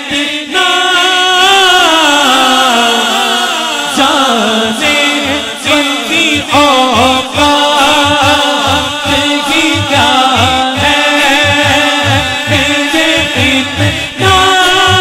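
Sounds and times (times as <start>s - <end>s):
man singing through microphone: 0.0s - 15.0s
low pulsing beat: 6.4s - 15.0s.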